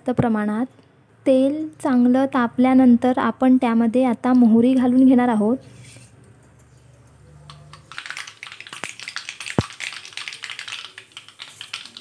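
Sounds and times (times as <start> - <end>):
seeds popping in hot oil: 7.7 - 12.0.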